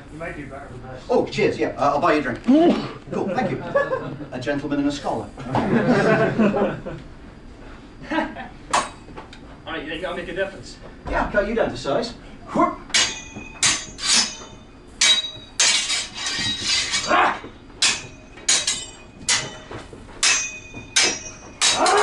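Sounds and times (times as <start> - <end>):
steel swords clashing: 12.9 - 22.0.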